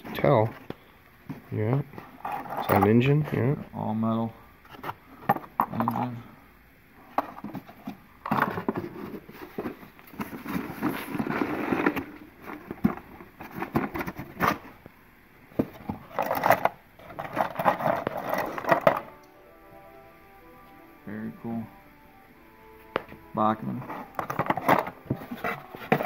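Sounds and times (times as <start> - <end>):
cardboard rustling and scraping: 7.2 - 14.8, 15.6 - 19.1, 23.8 - 26.0.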